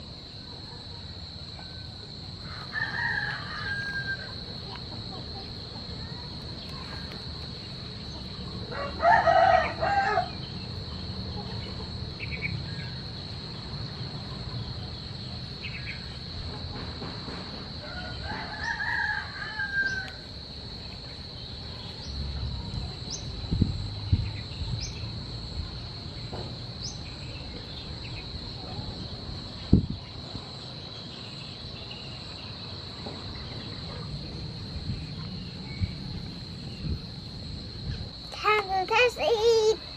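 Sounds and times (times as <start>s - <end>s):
rooster crowing: 2.4s - 4.4s, 8.7s - 10.4s, 17.8s - 20.2s.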